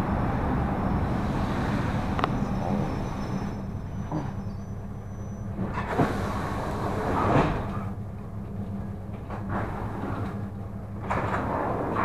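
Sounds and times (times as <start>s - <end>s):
train electric hum: 0.0s - 12.0s
knocks and clatters: 11.0s - 12.0s.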